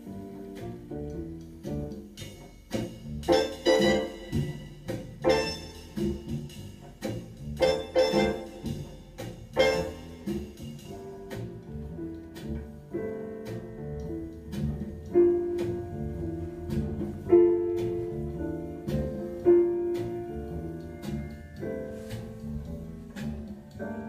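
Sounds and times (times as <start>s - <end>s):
instrumental piano music: 0.0s - 24.0s
strong held notes: 3.3s - 6.2s, 7.6s - 8.9s, 9.6s - 10.3s.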